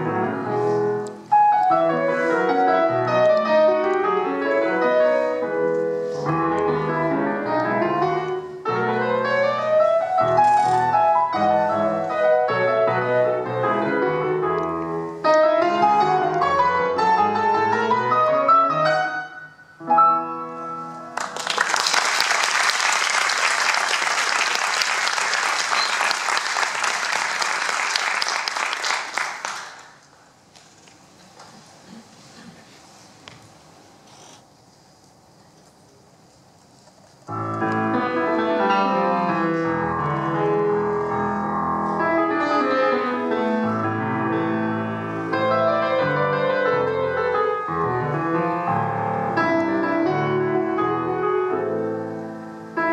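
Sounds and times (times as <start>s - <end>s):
grand piano playing folk-dance piece: 0.0s - 30.1s, 37.2s - 52.9s
audience applauding: 21.1s - 30.2s.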